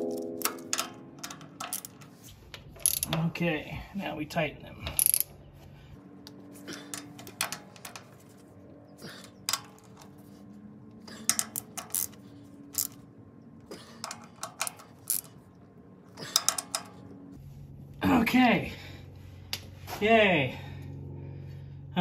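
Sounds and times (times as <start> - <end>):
ratchet wrench clicking: 2.8 - 3.2, 4.9 - 5.3, 11.2 - 13.0, 14.0 - 15.4, 16.3 - 17.0.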